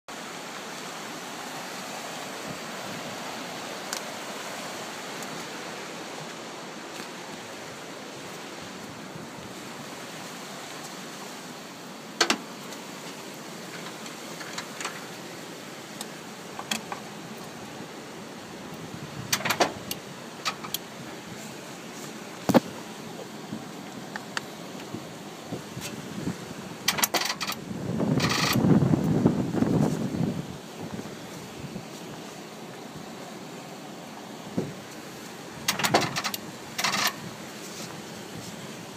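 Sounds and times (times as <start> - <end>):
wind hiss on microphone: 0.1 - 38.9
handling clicks and knocks: 12.2 - 12.8, 16.0 - 17.1, 19.3 - 20.8, 26.9 - 27.6, 35.7 - 37.2.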